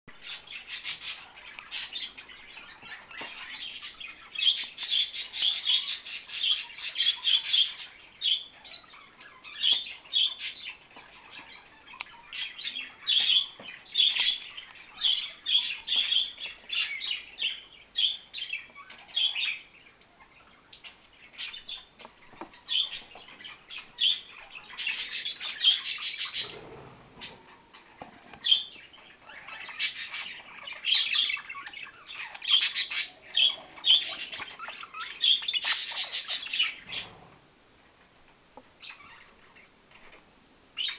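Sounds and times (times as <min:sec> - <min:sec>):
budgerigars chirping and warbling: 0:00.2 - 0:37.2, 0:38.8 - 0:39.7.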